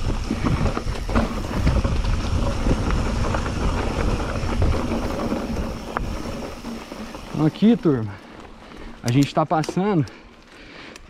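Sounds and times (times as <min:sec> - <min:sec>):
wind buffeting microphone: 0:00.0 - 0:07.9
tyres rumbling over dirt: 0:00.0 - 0:10.0
bike rattling and knocking: 0:00.0 - 0:10.2.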